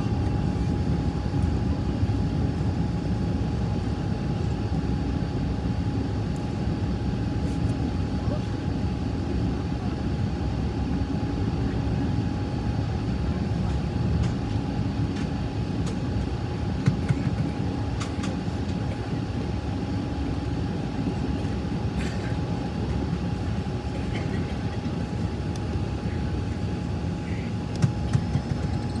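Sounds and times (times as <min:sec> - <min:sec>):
airliner cabin rumble: 0:00.0 - 0:29.0
faint steady whine: 0:00.0 - 0:29.0
small clicks and rattles: 0:27.8 - 0:29.0.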